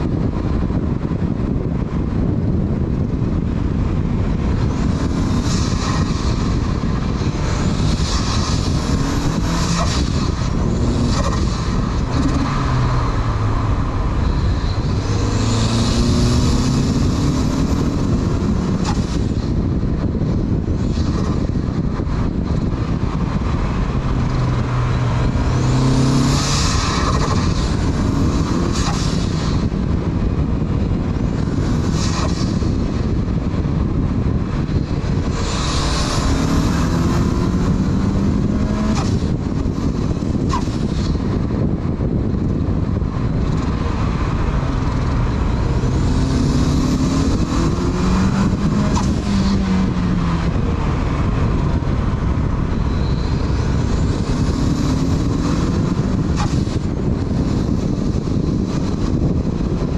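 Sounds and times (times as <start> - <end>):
wind and road noise: 0.0 - 59.9
car engine accelerating: 0.1 - 59.9.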